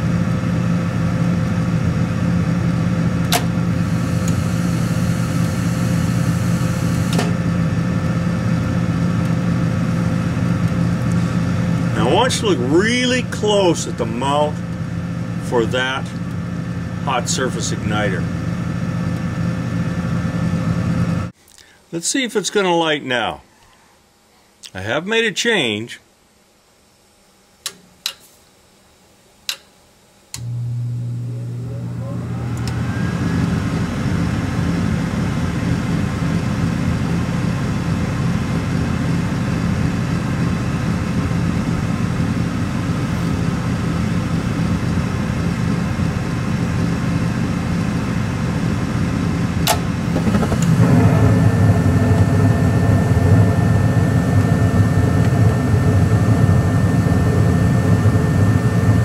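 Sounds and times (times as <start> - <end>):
furnace motor humming: 0.0 - 21.4, 30.3 - 59.0
gas burners lighting: 3.2 - 7.4, 31.3 - 33.8, 49.5 - 59.0
sharp click: 49.6 - 50.7.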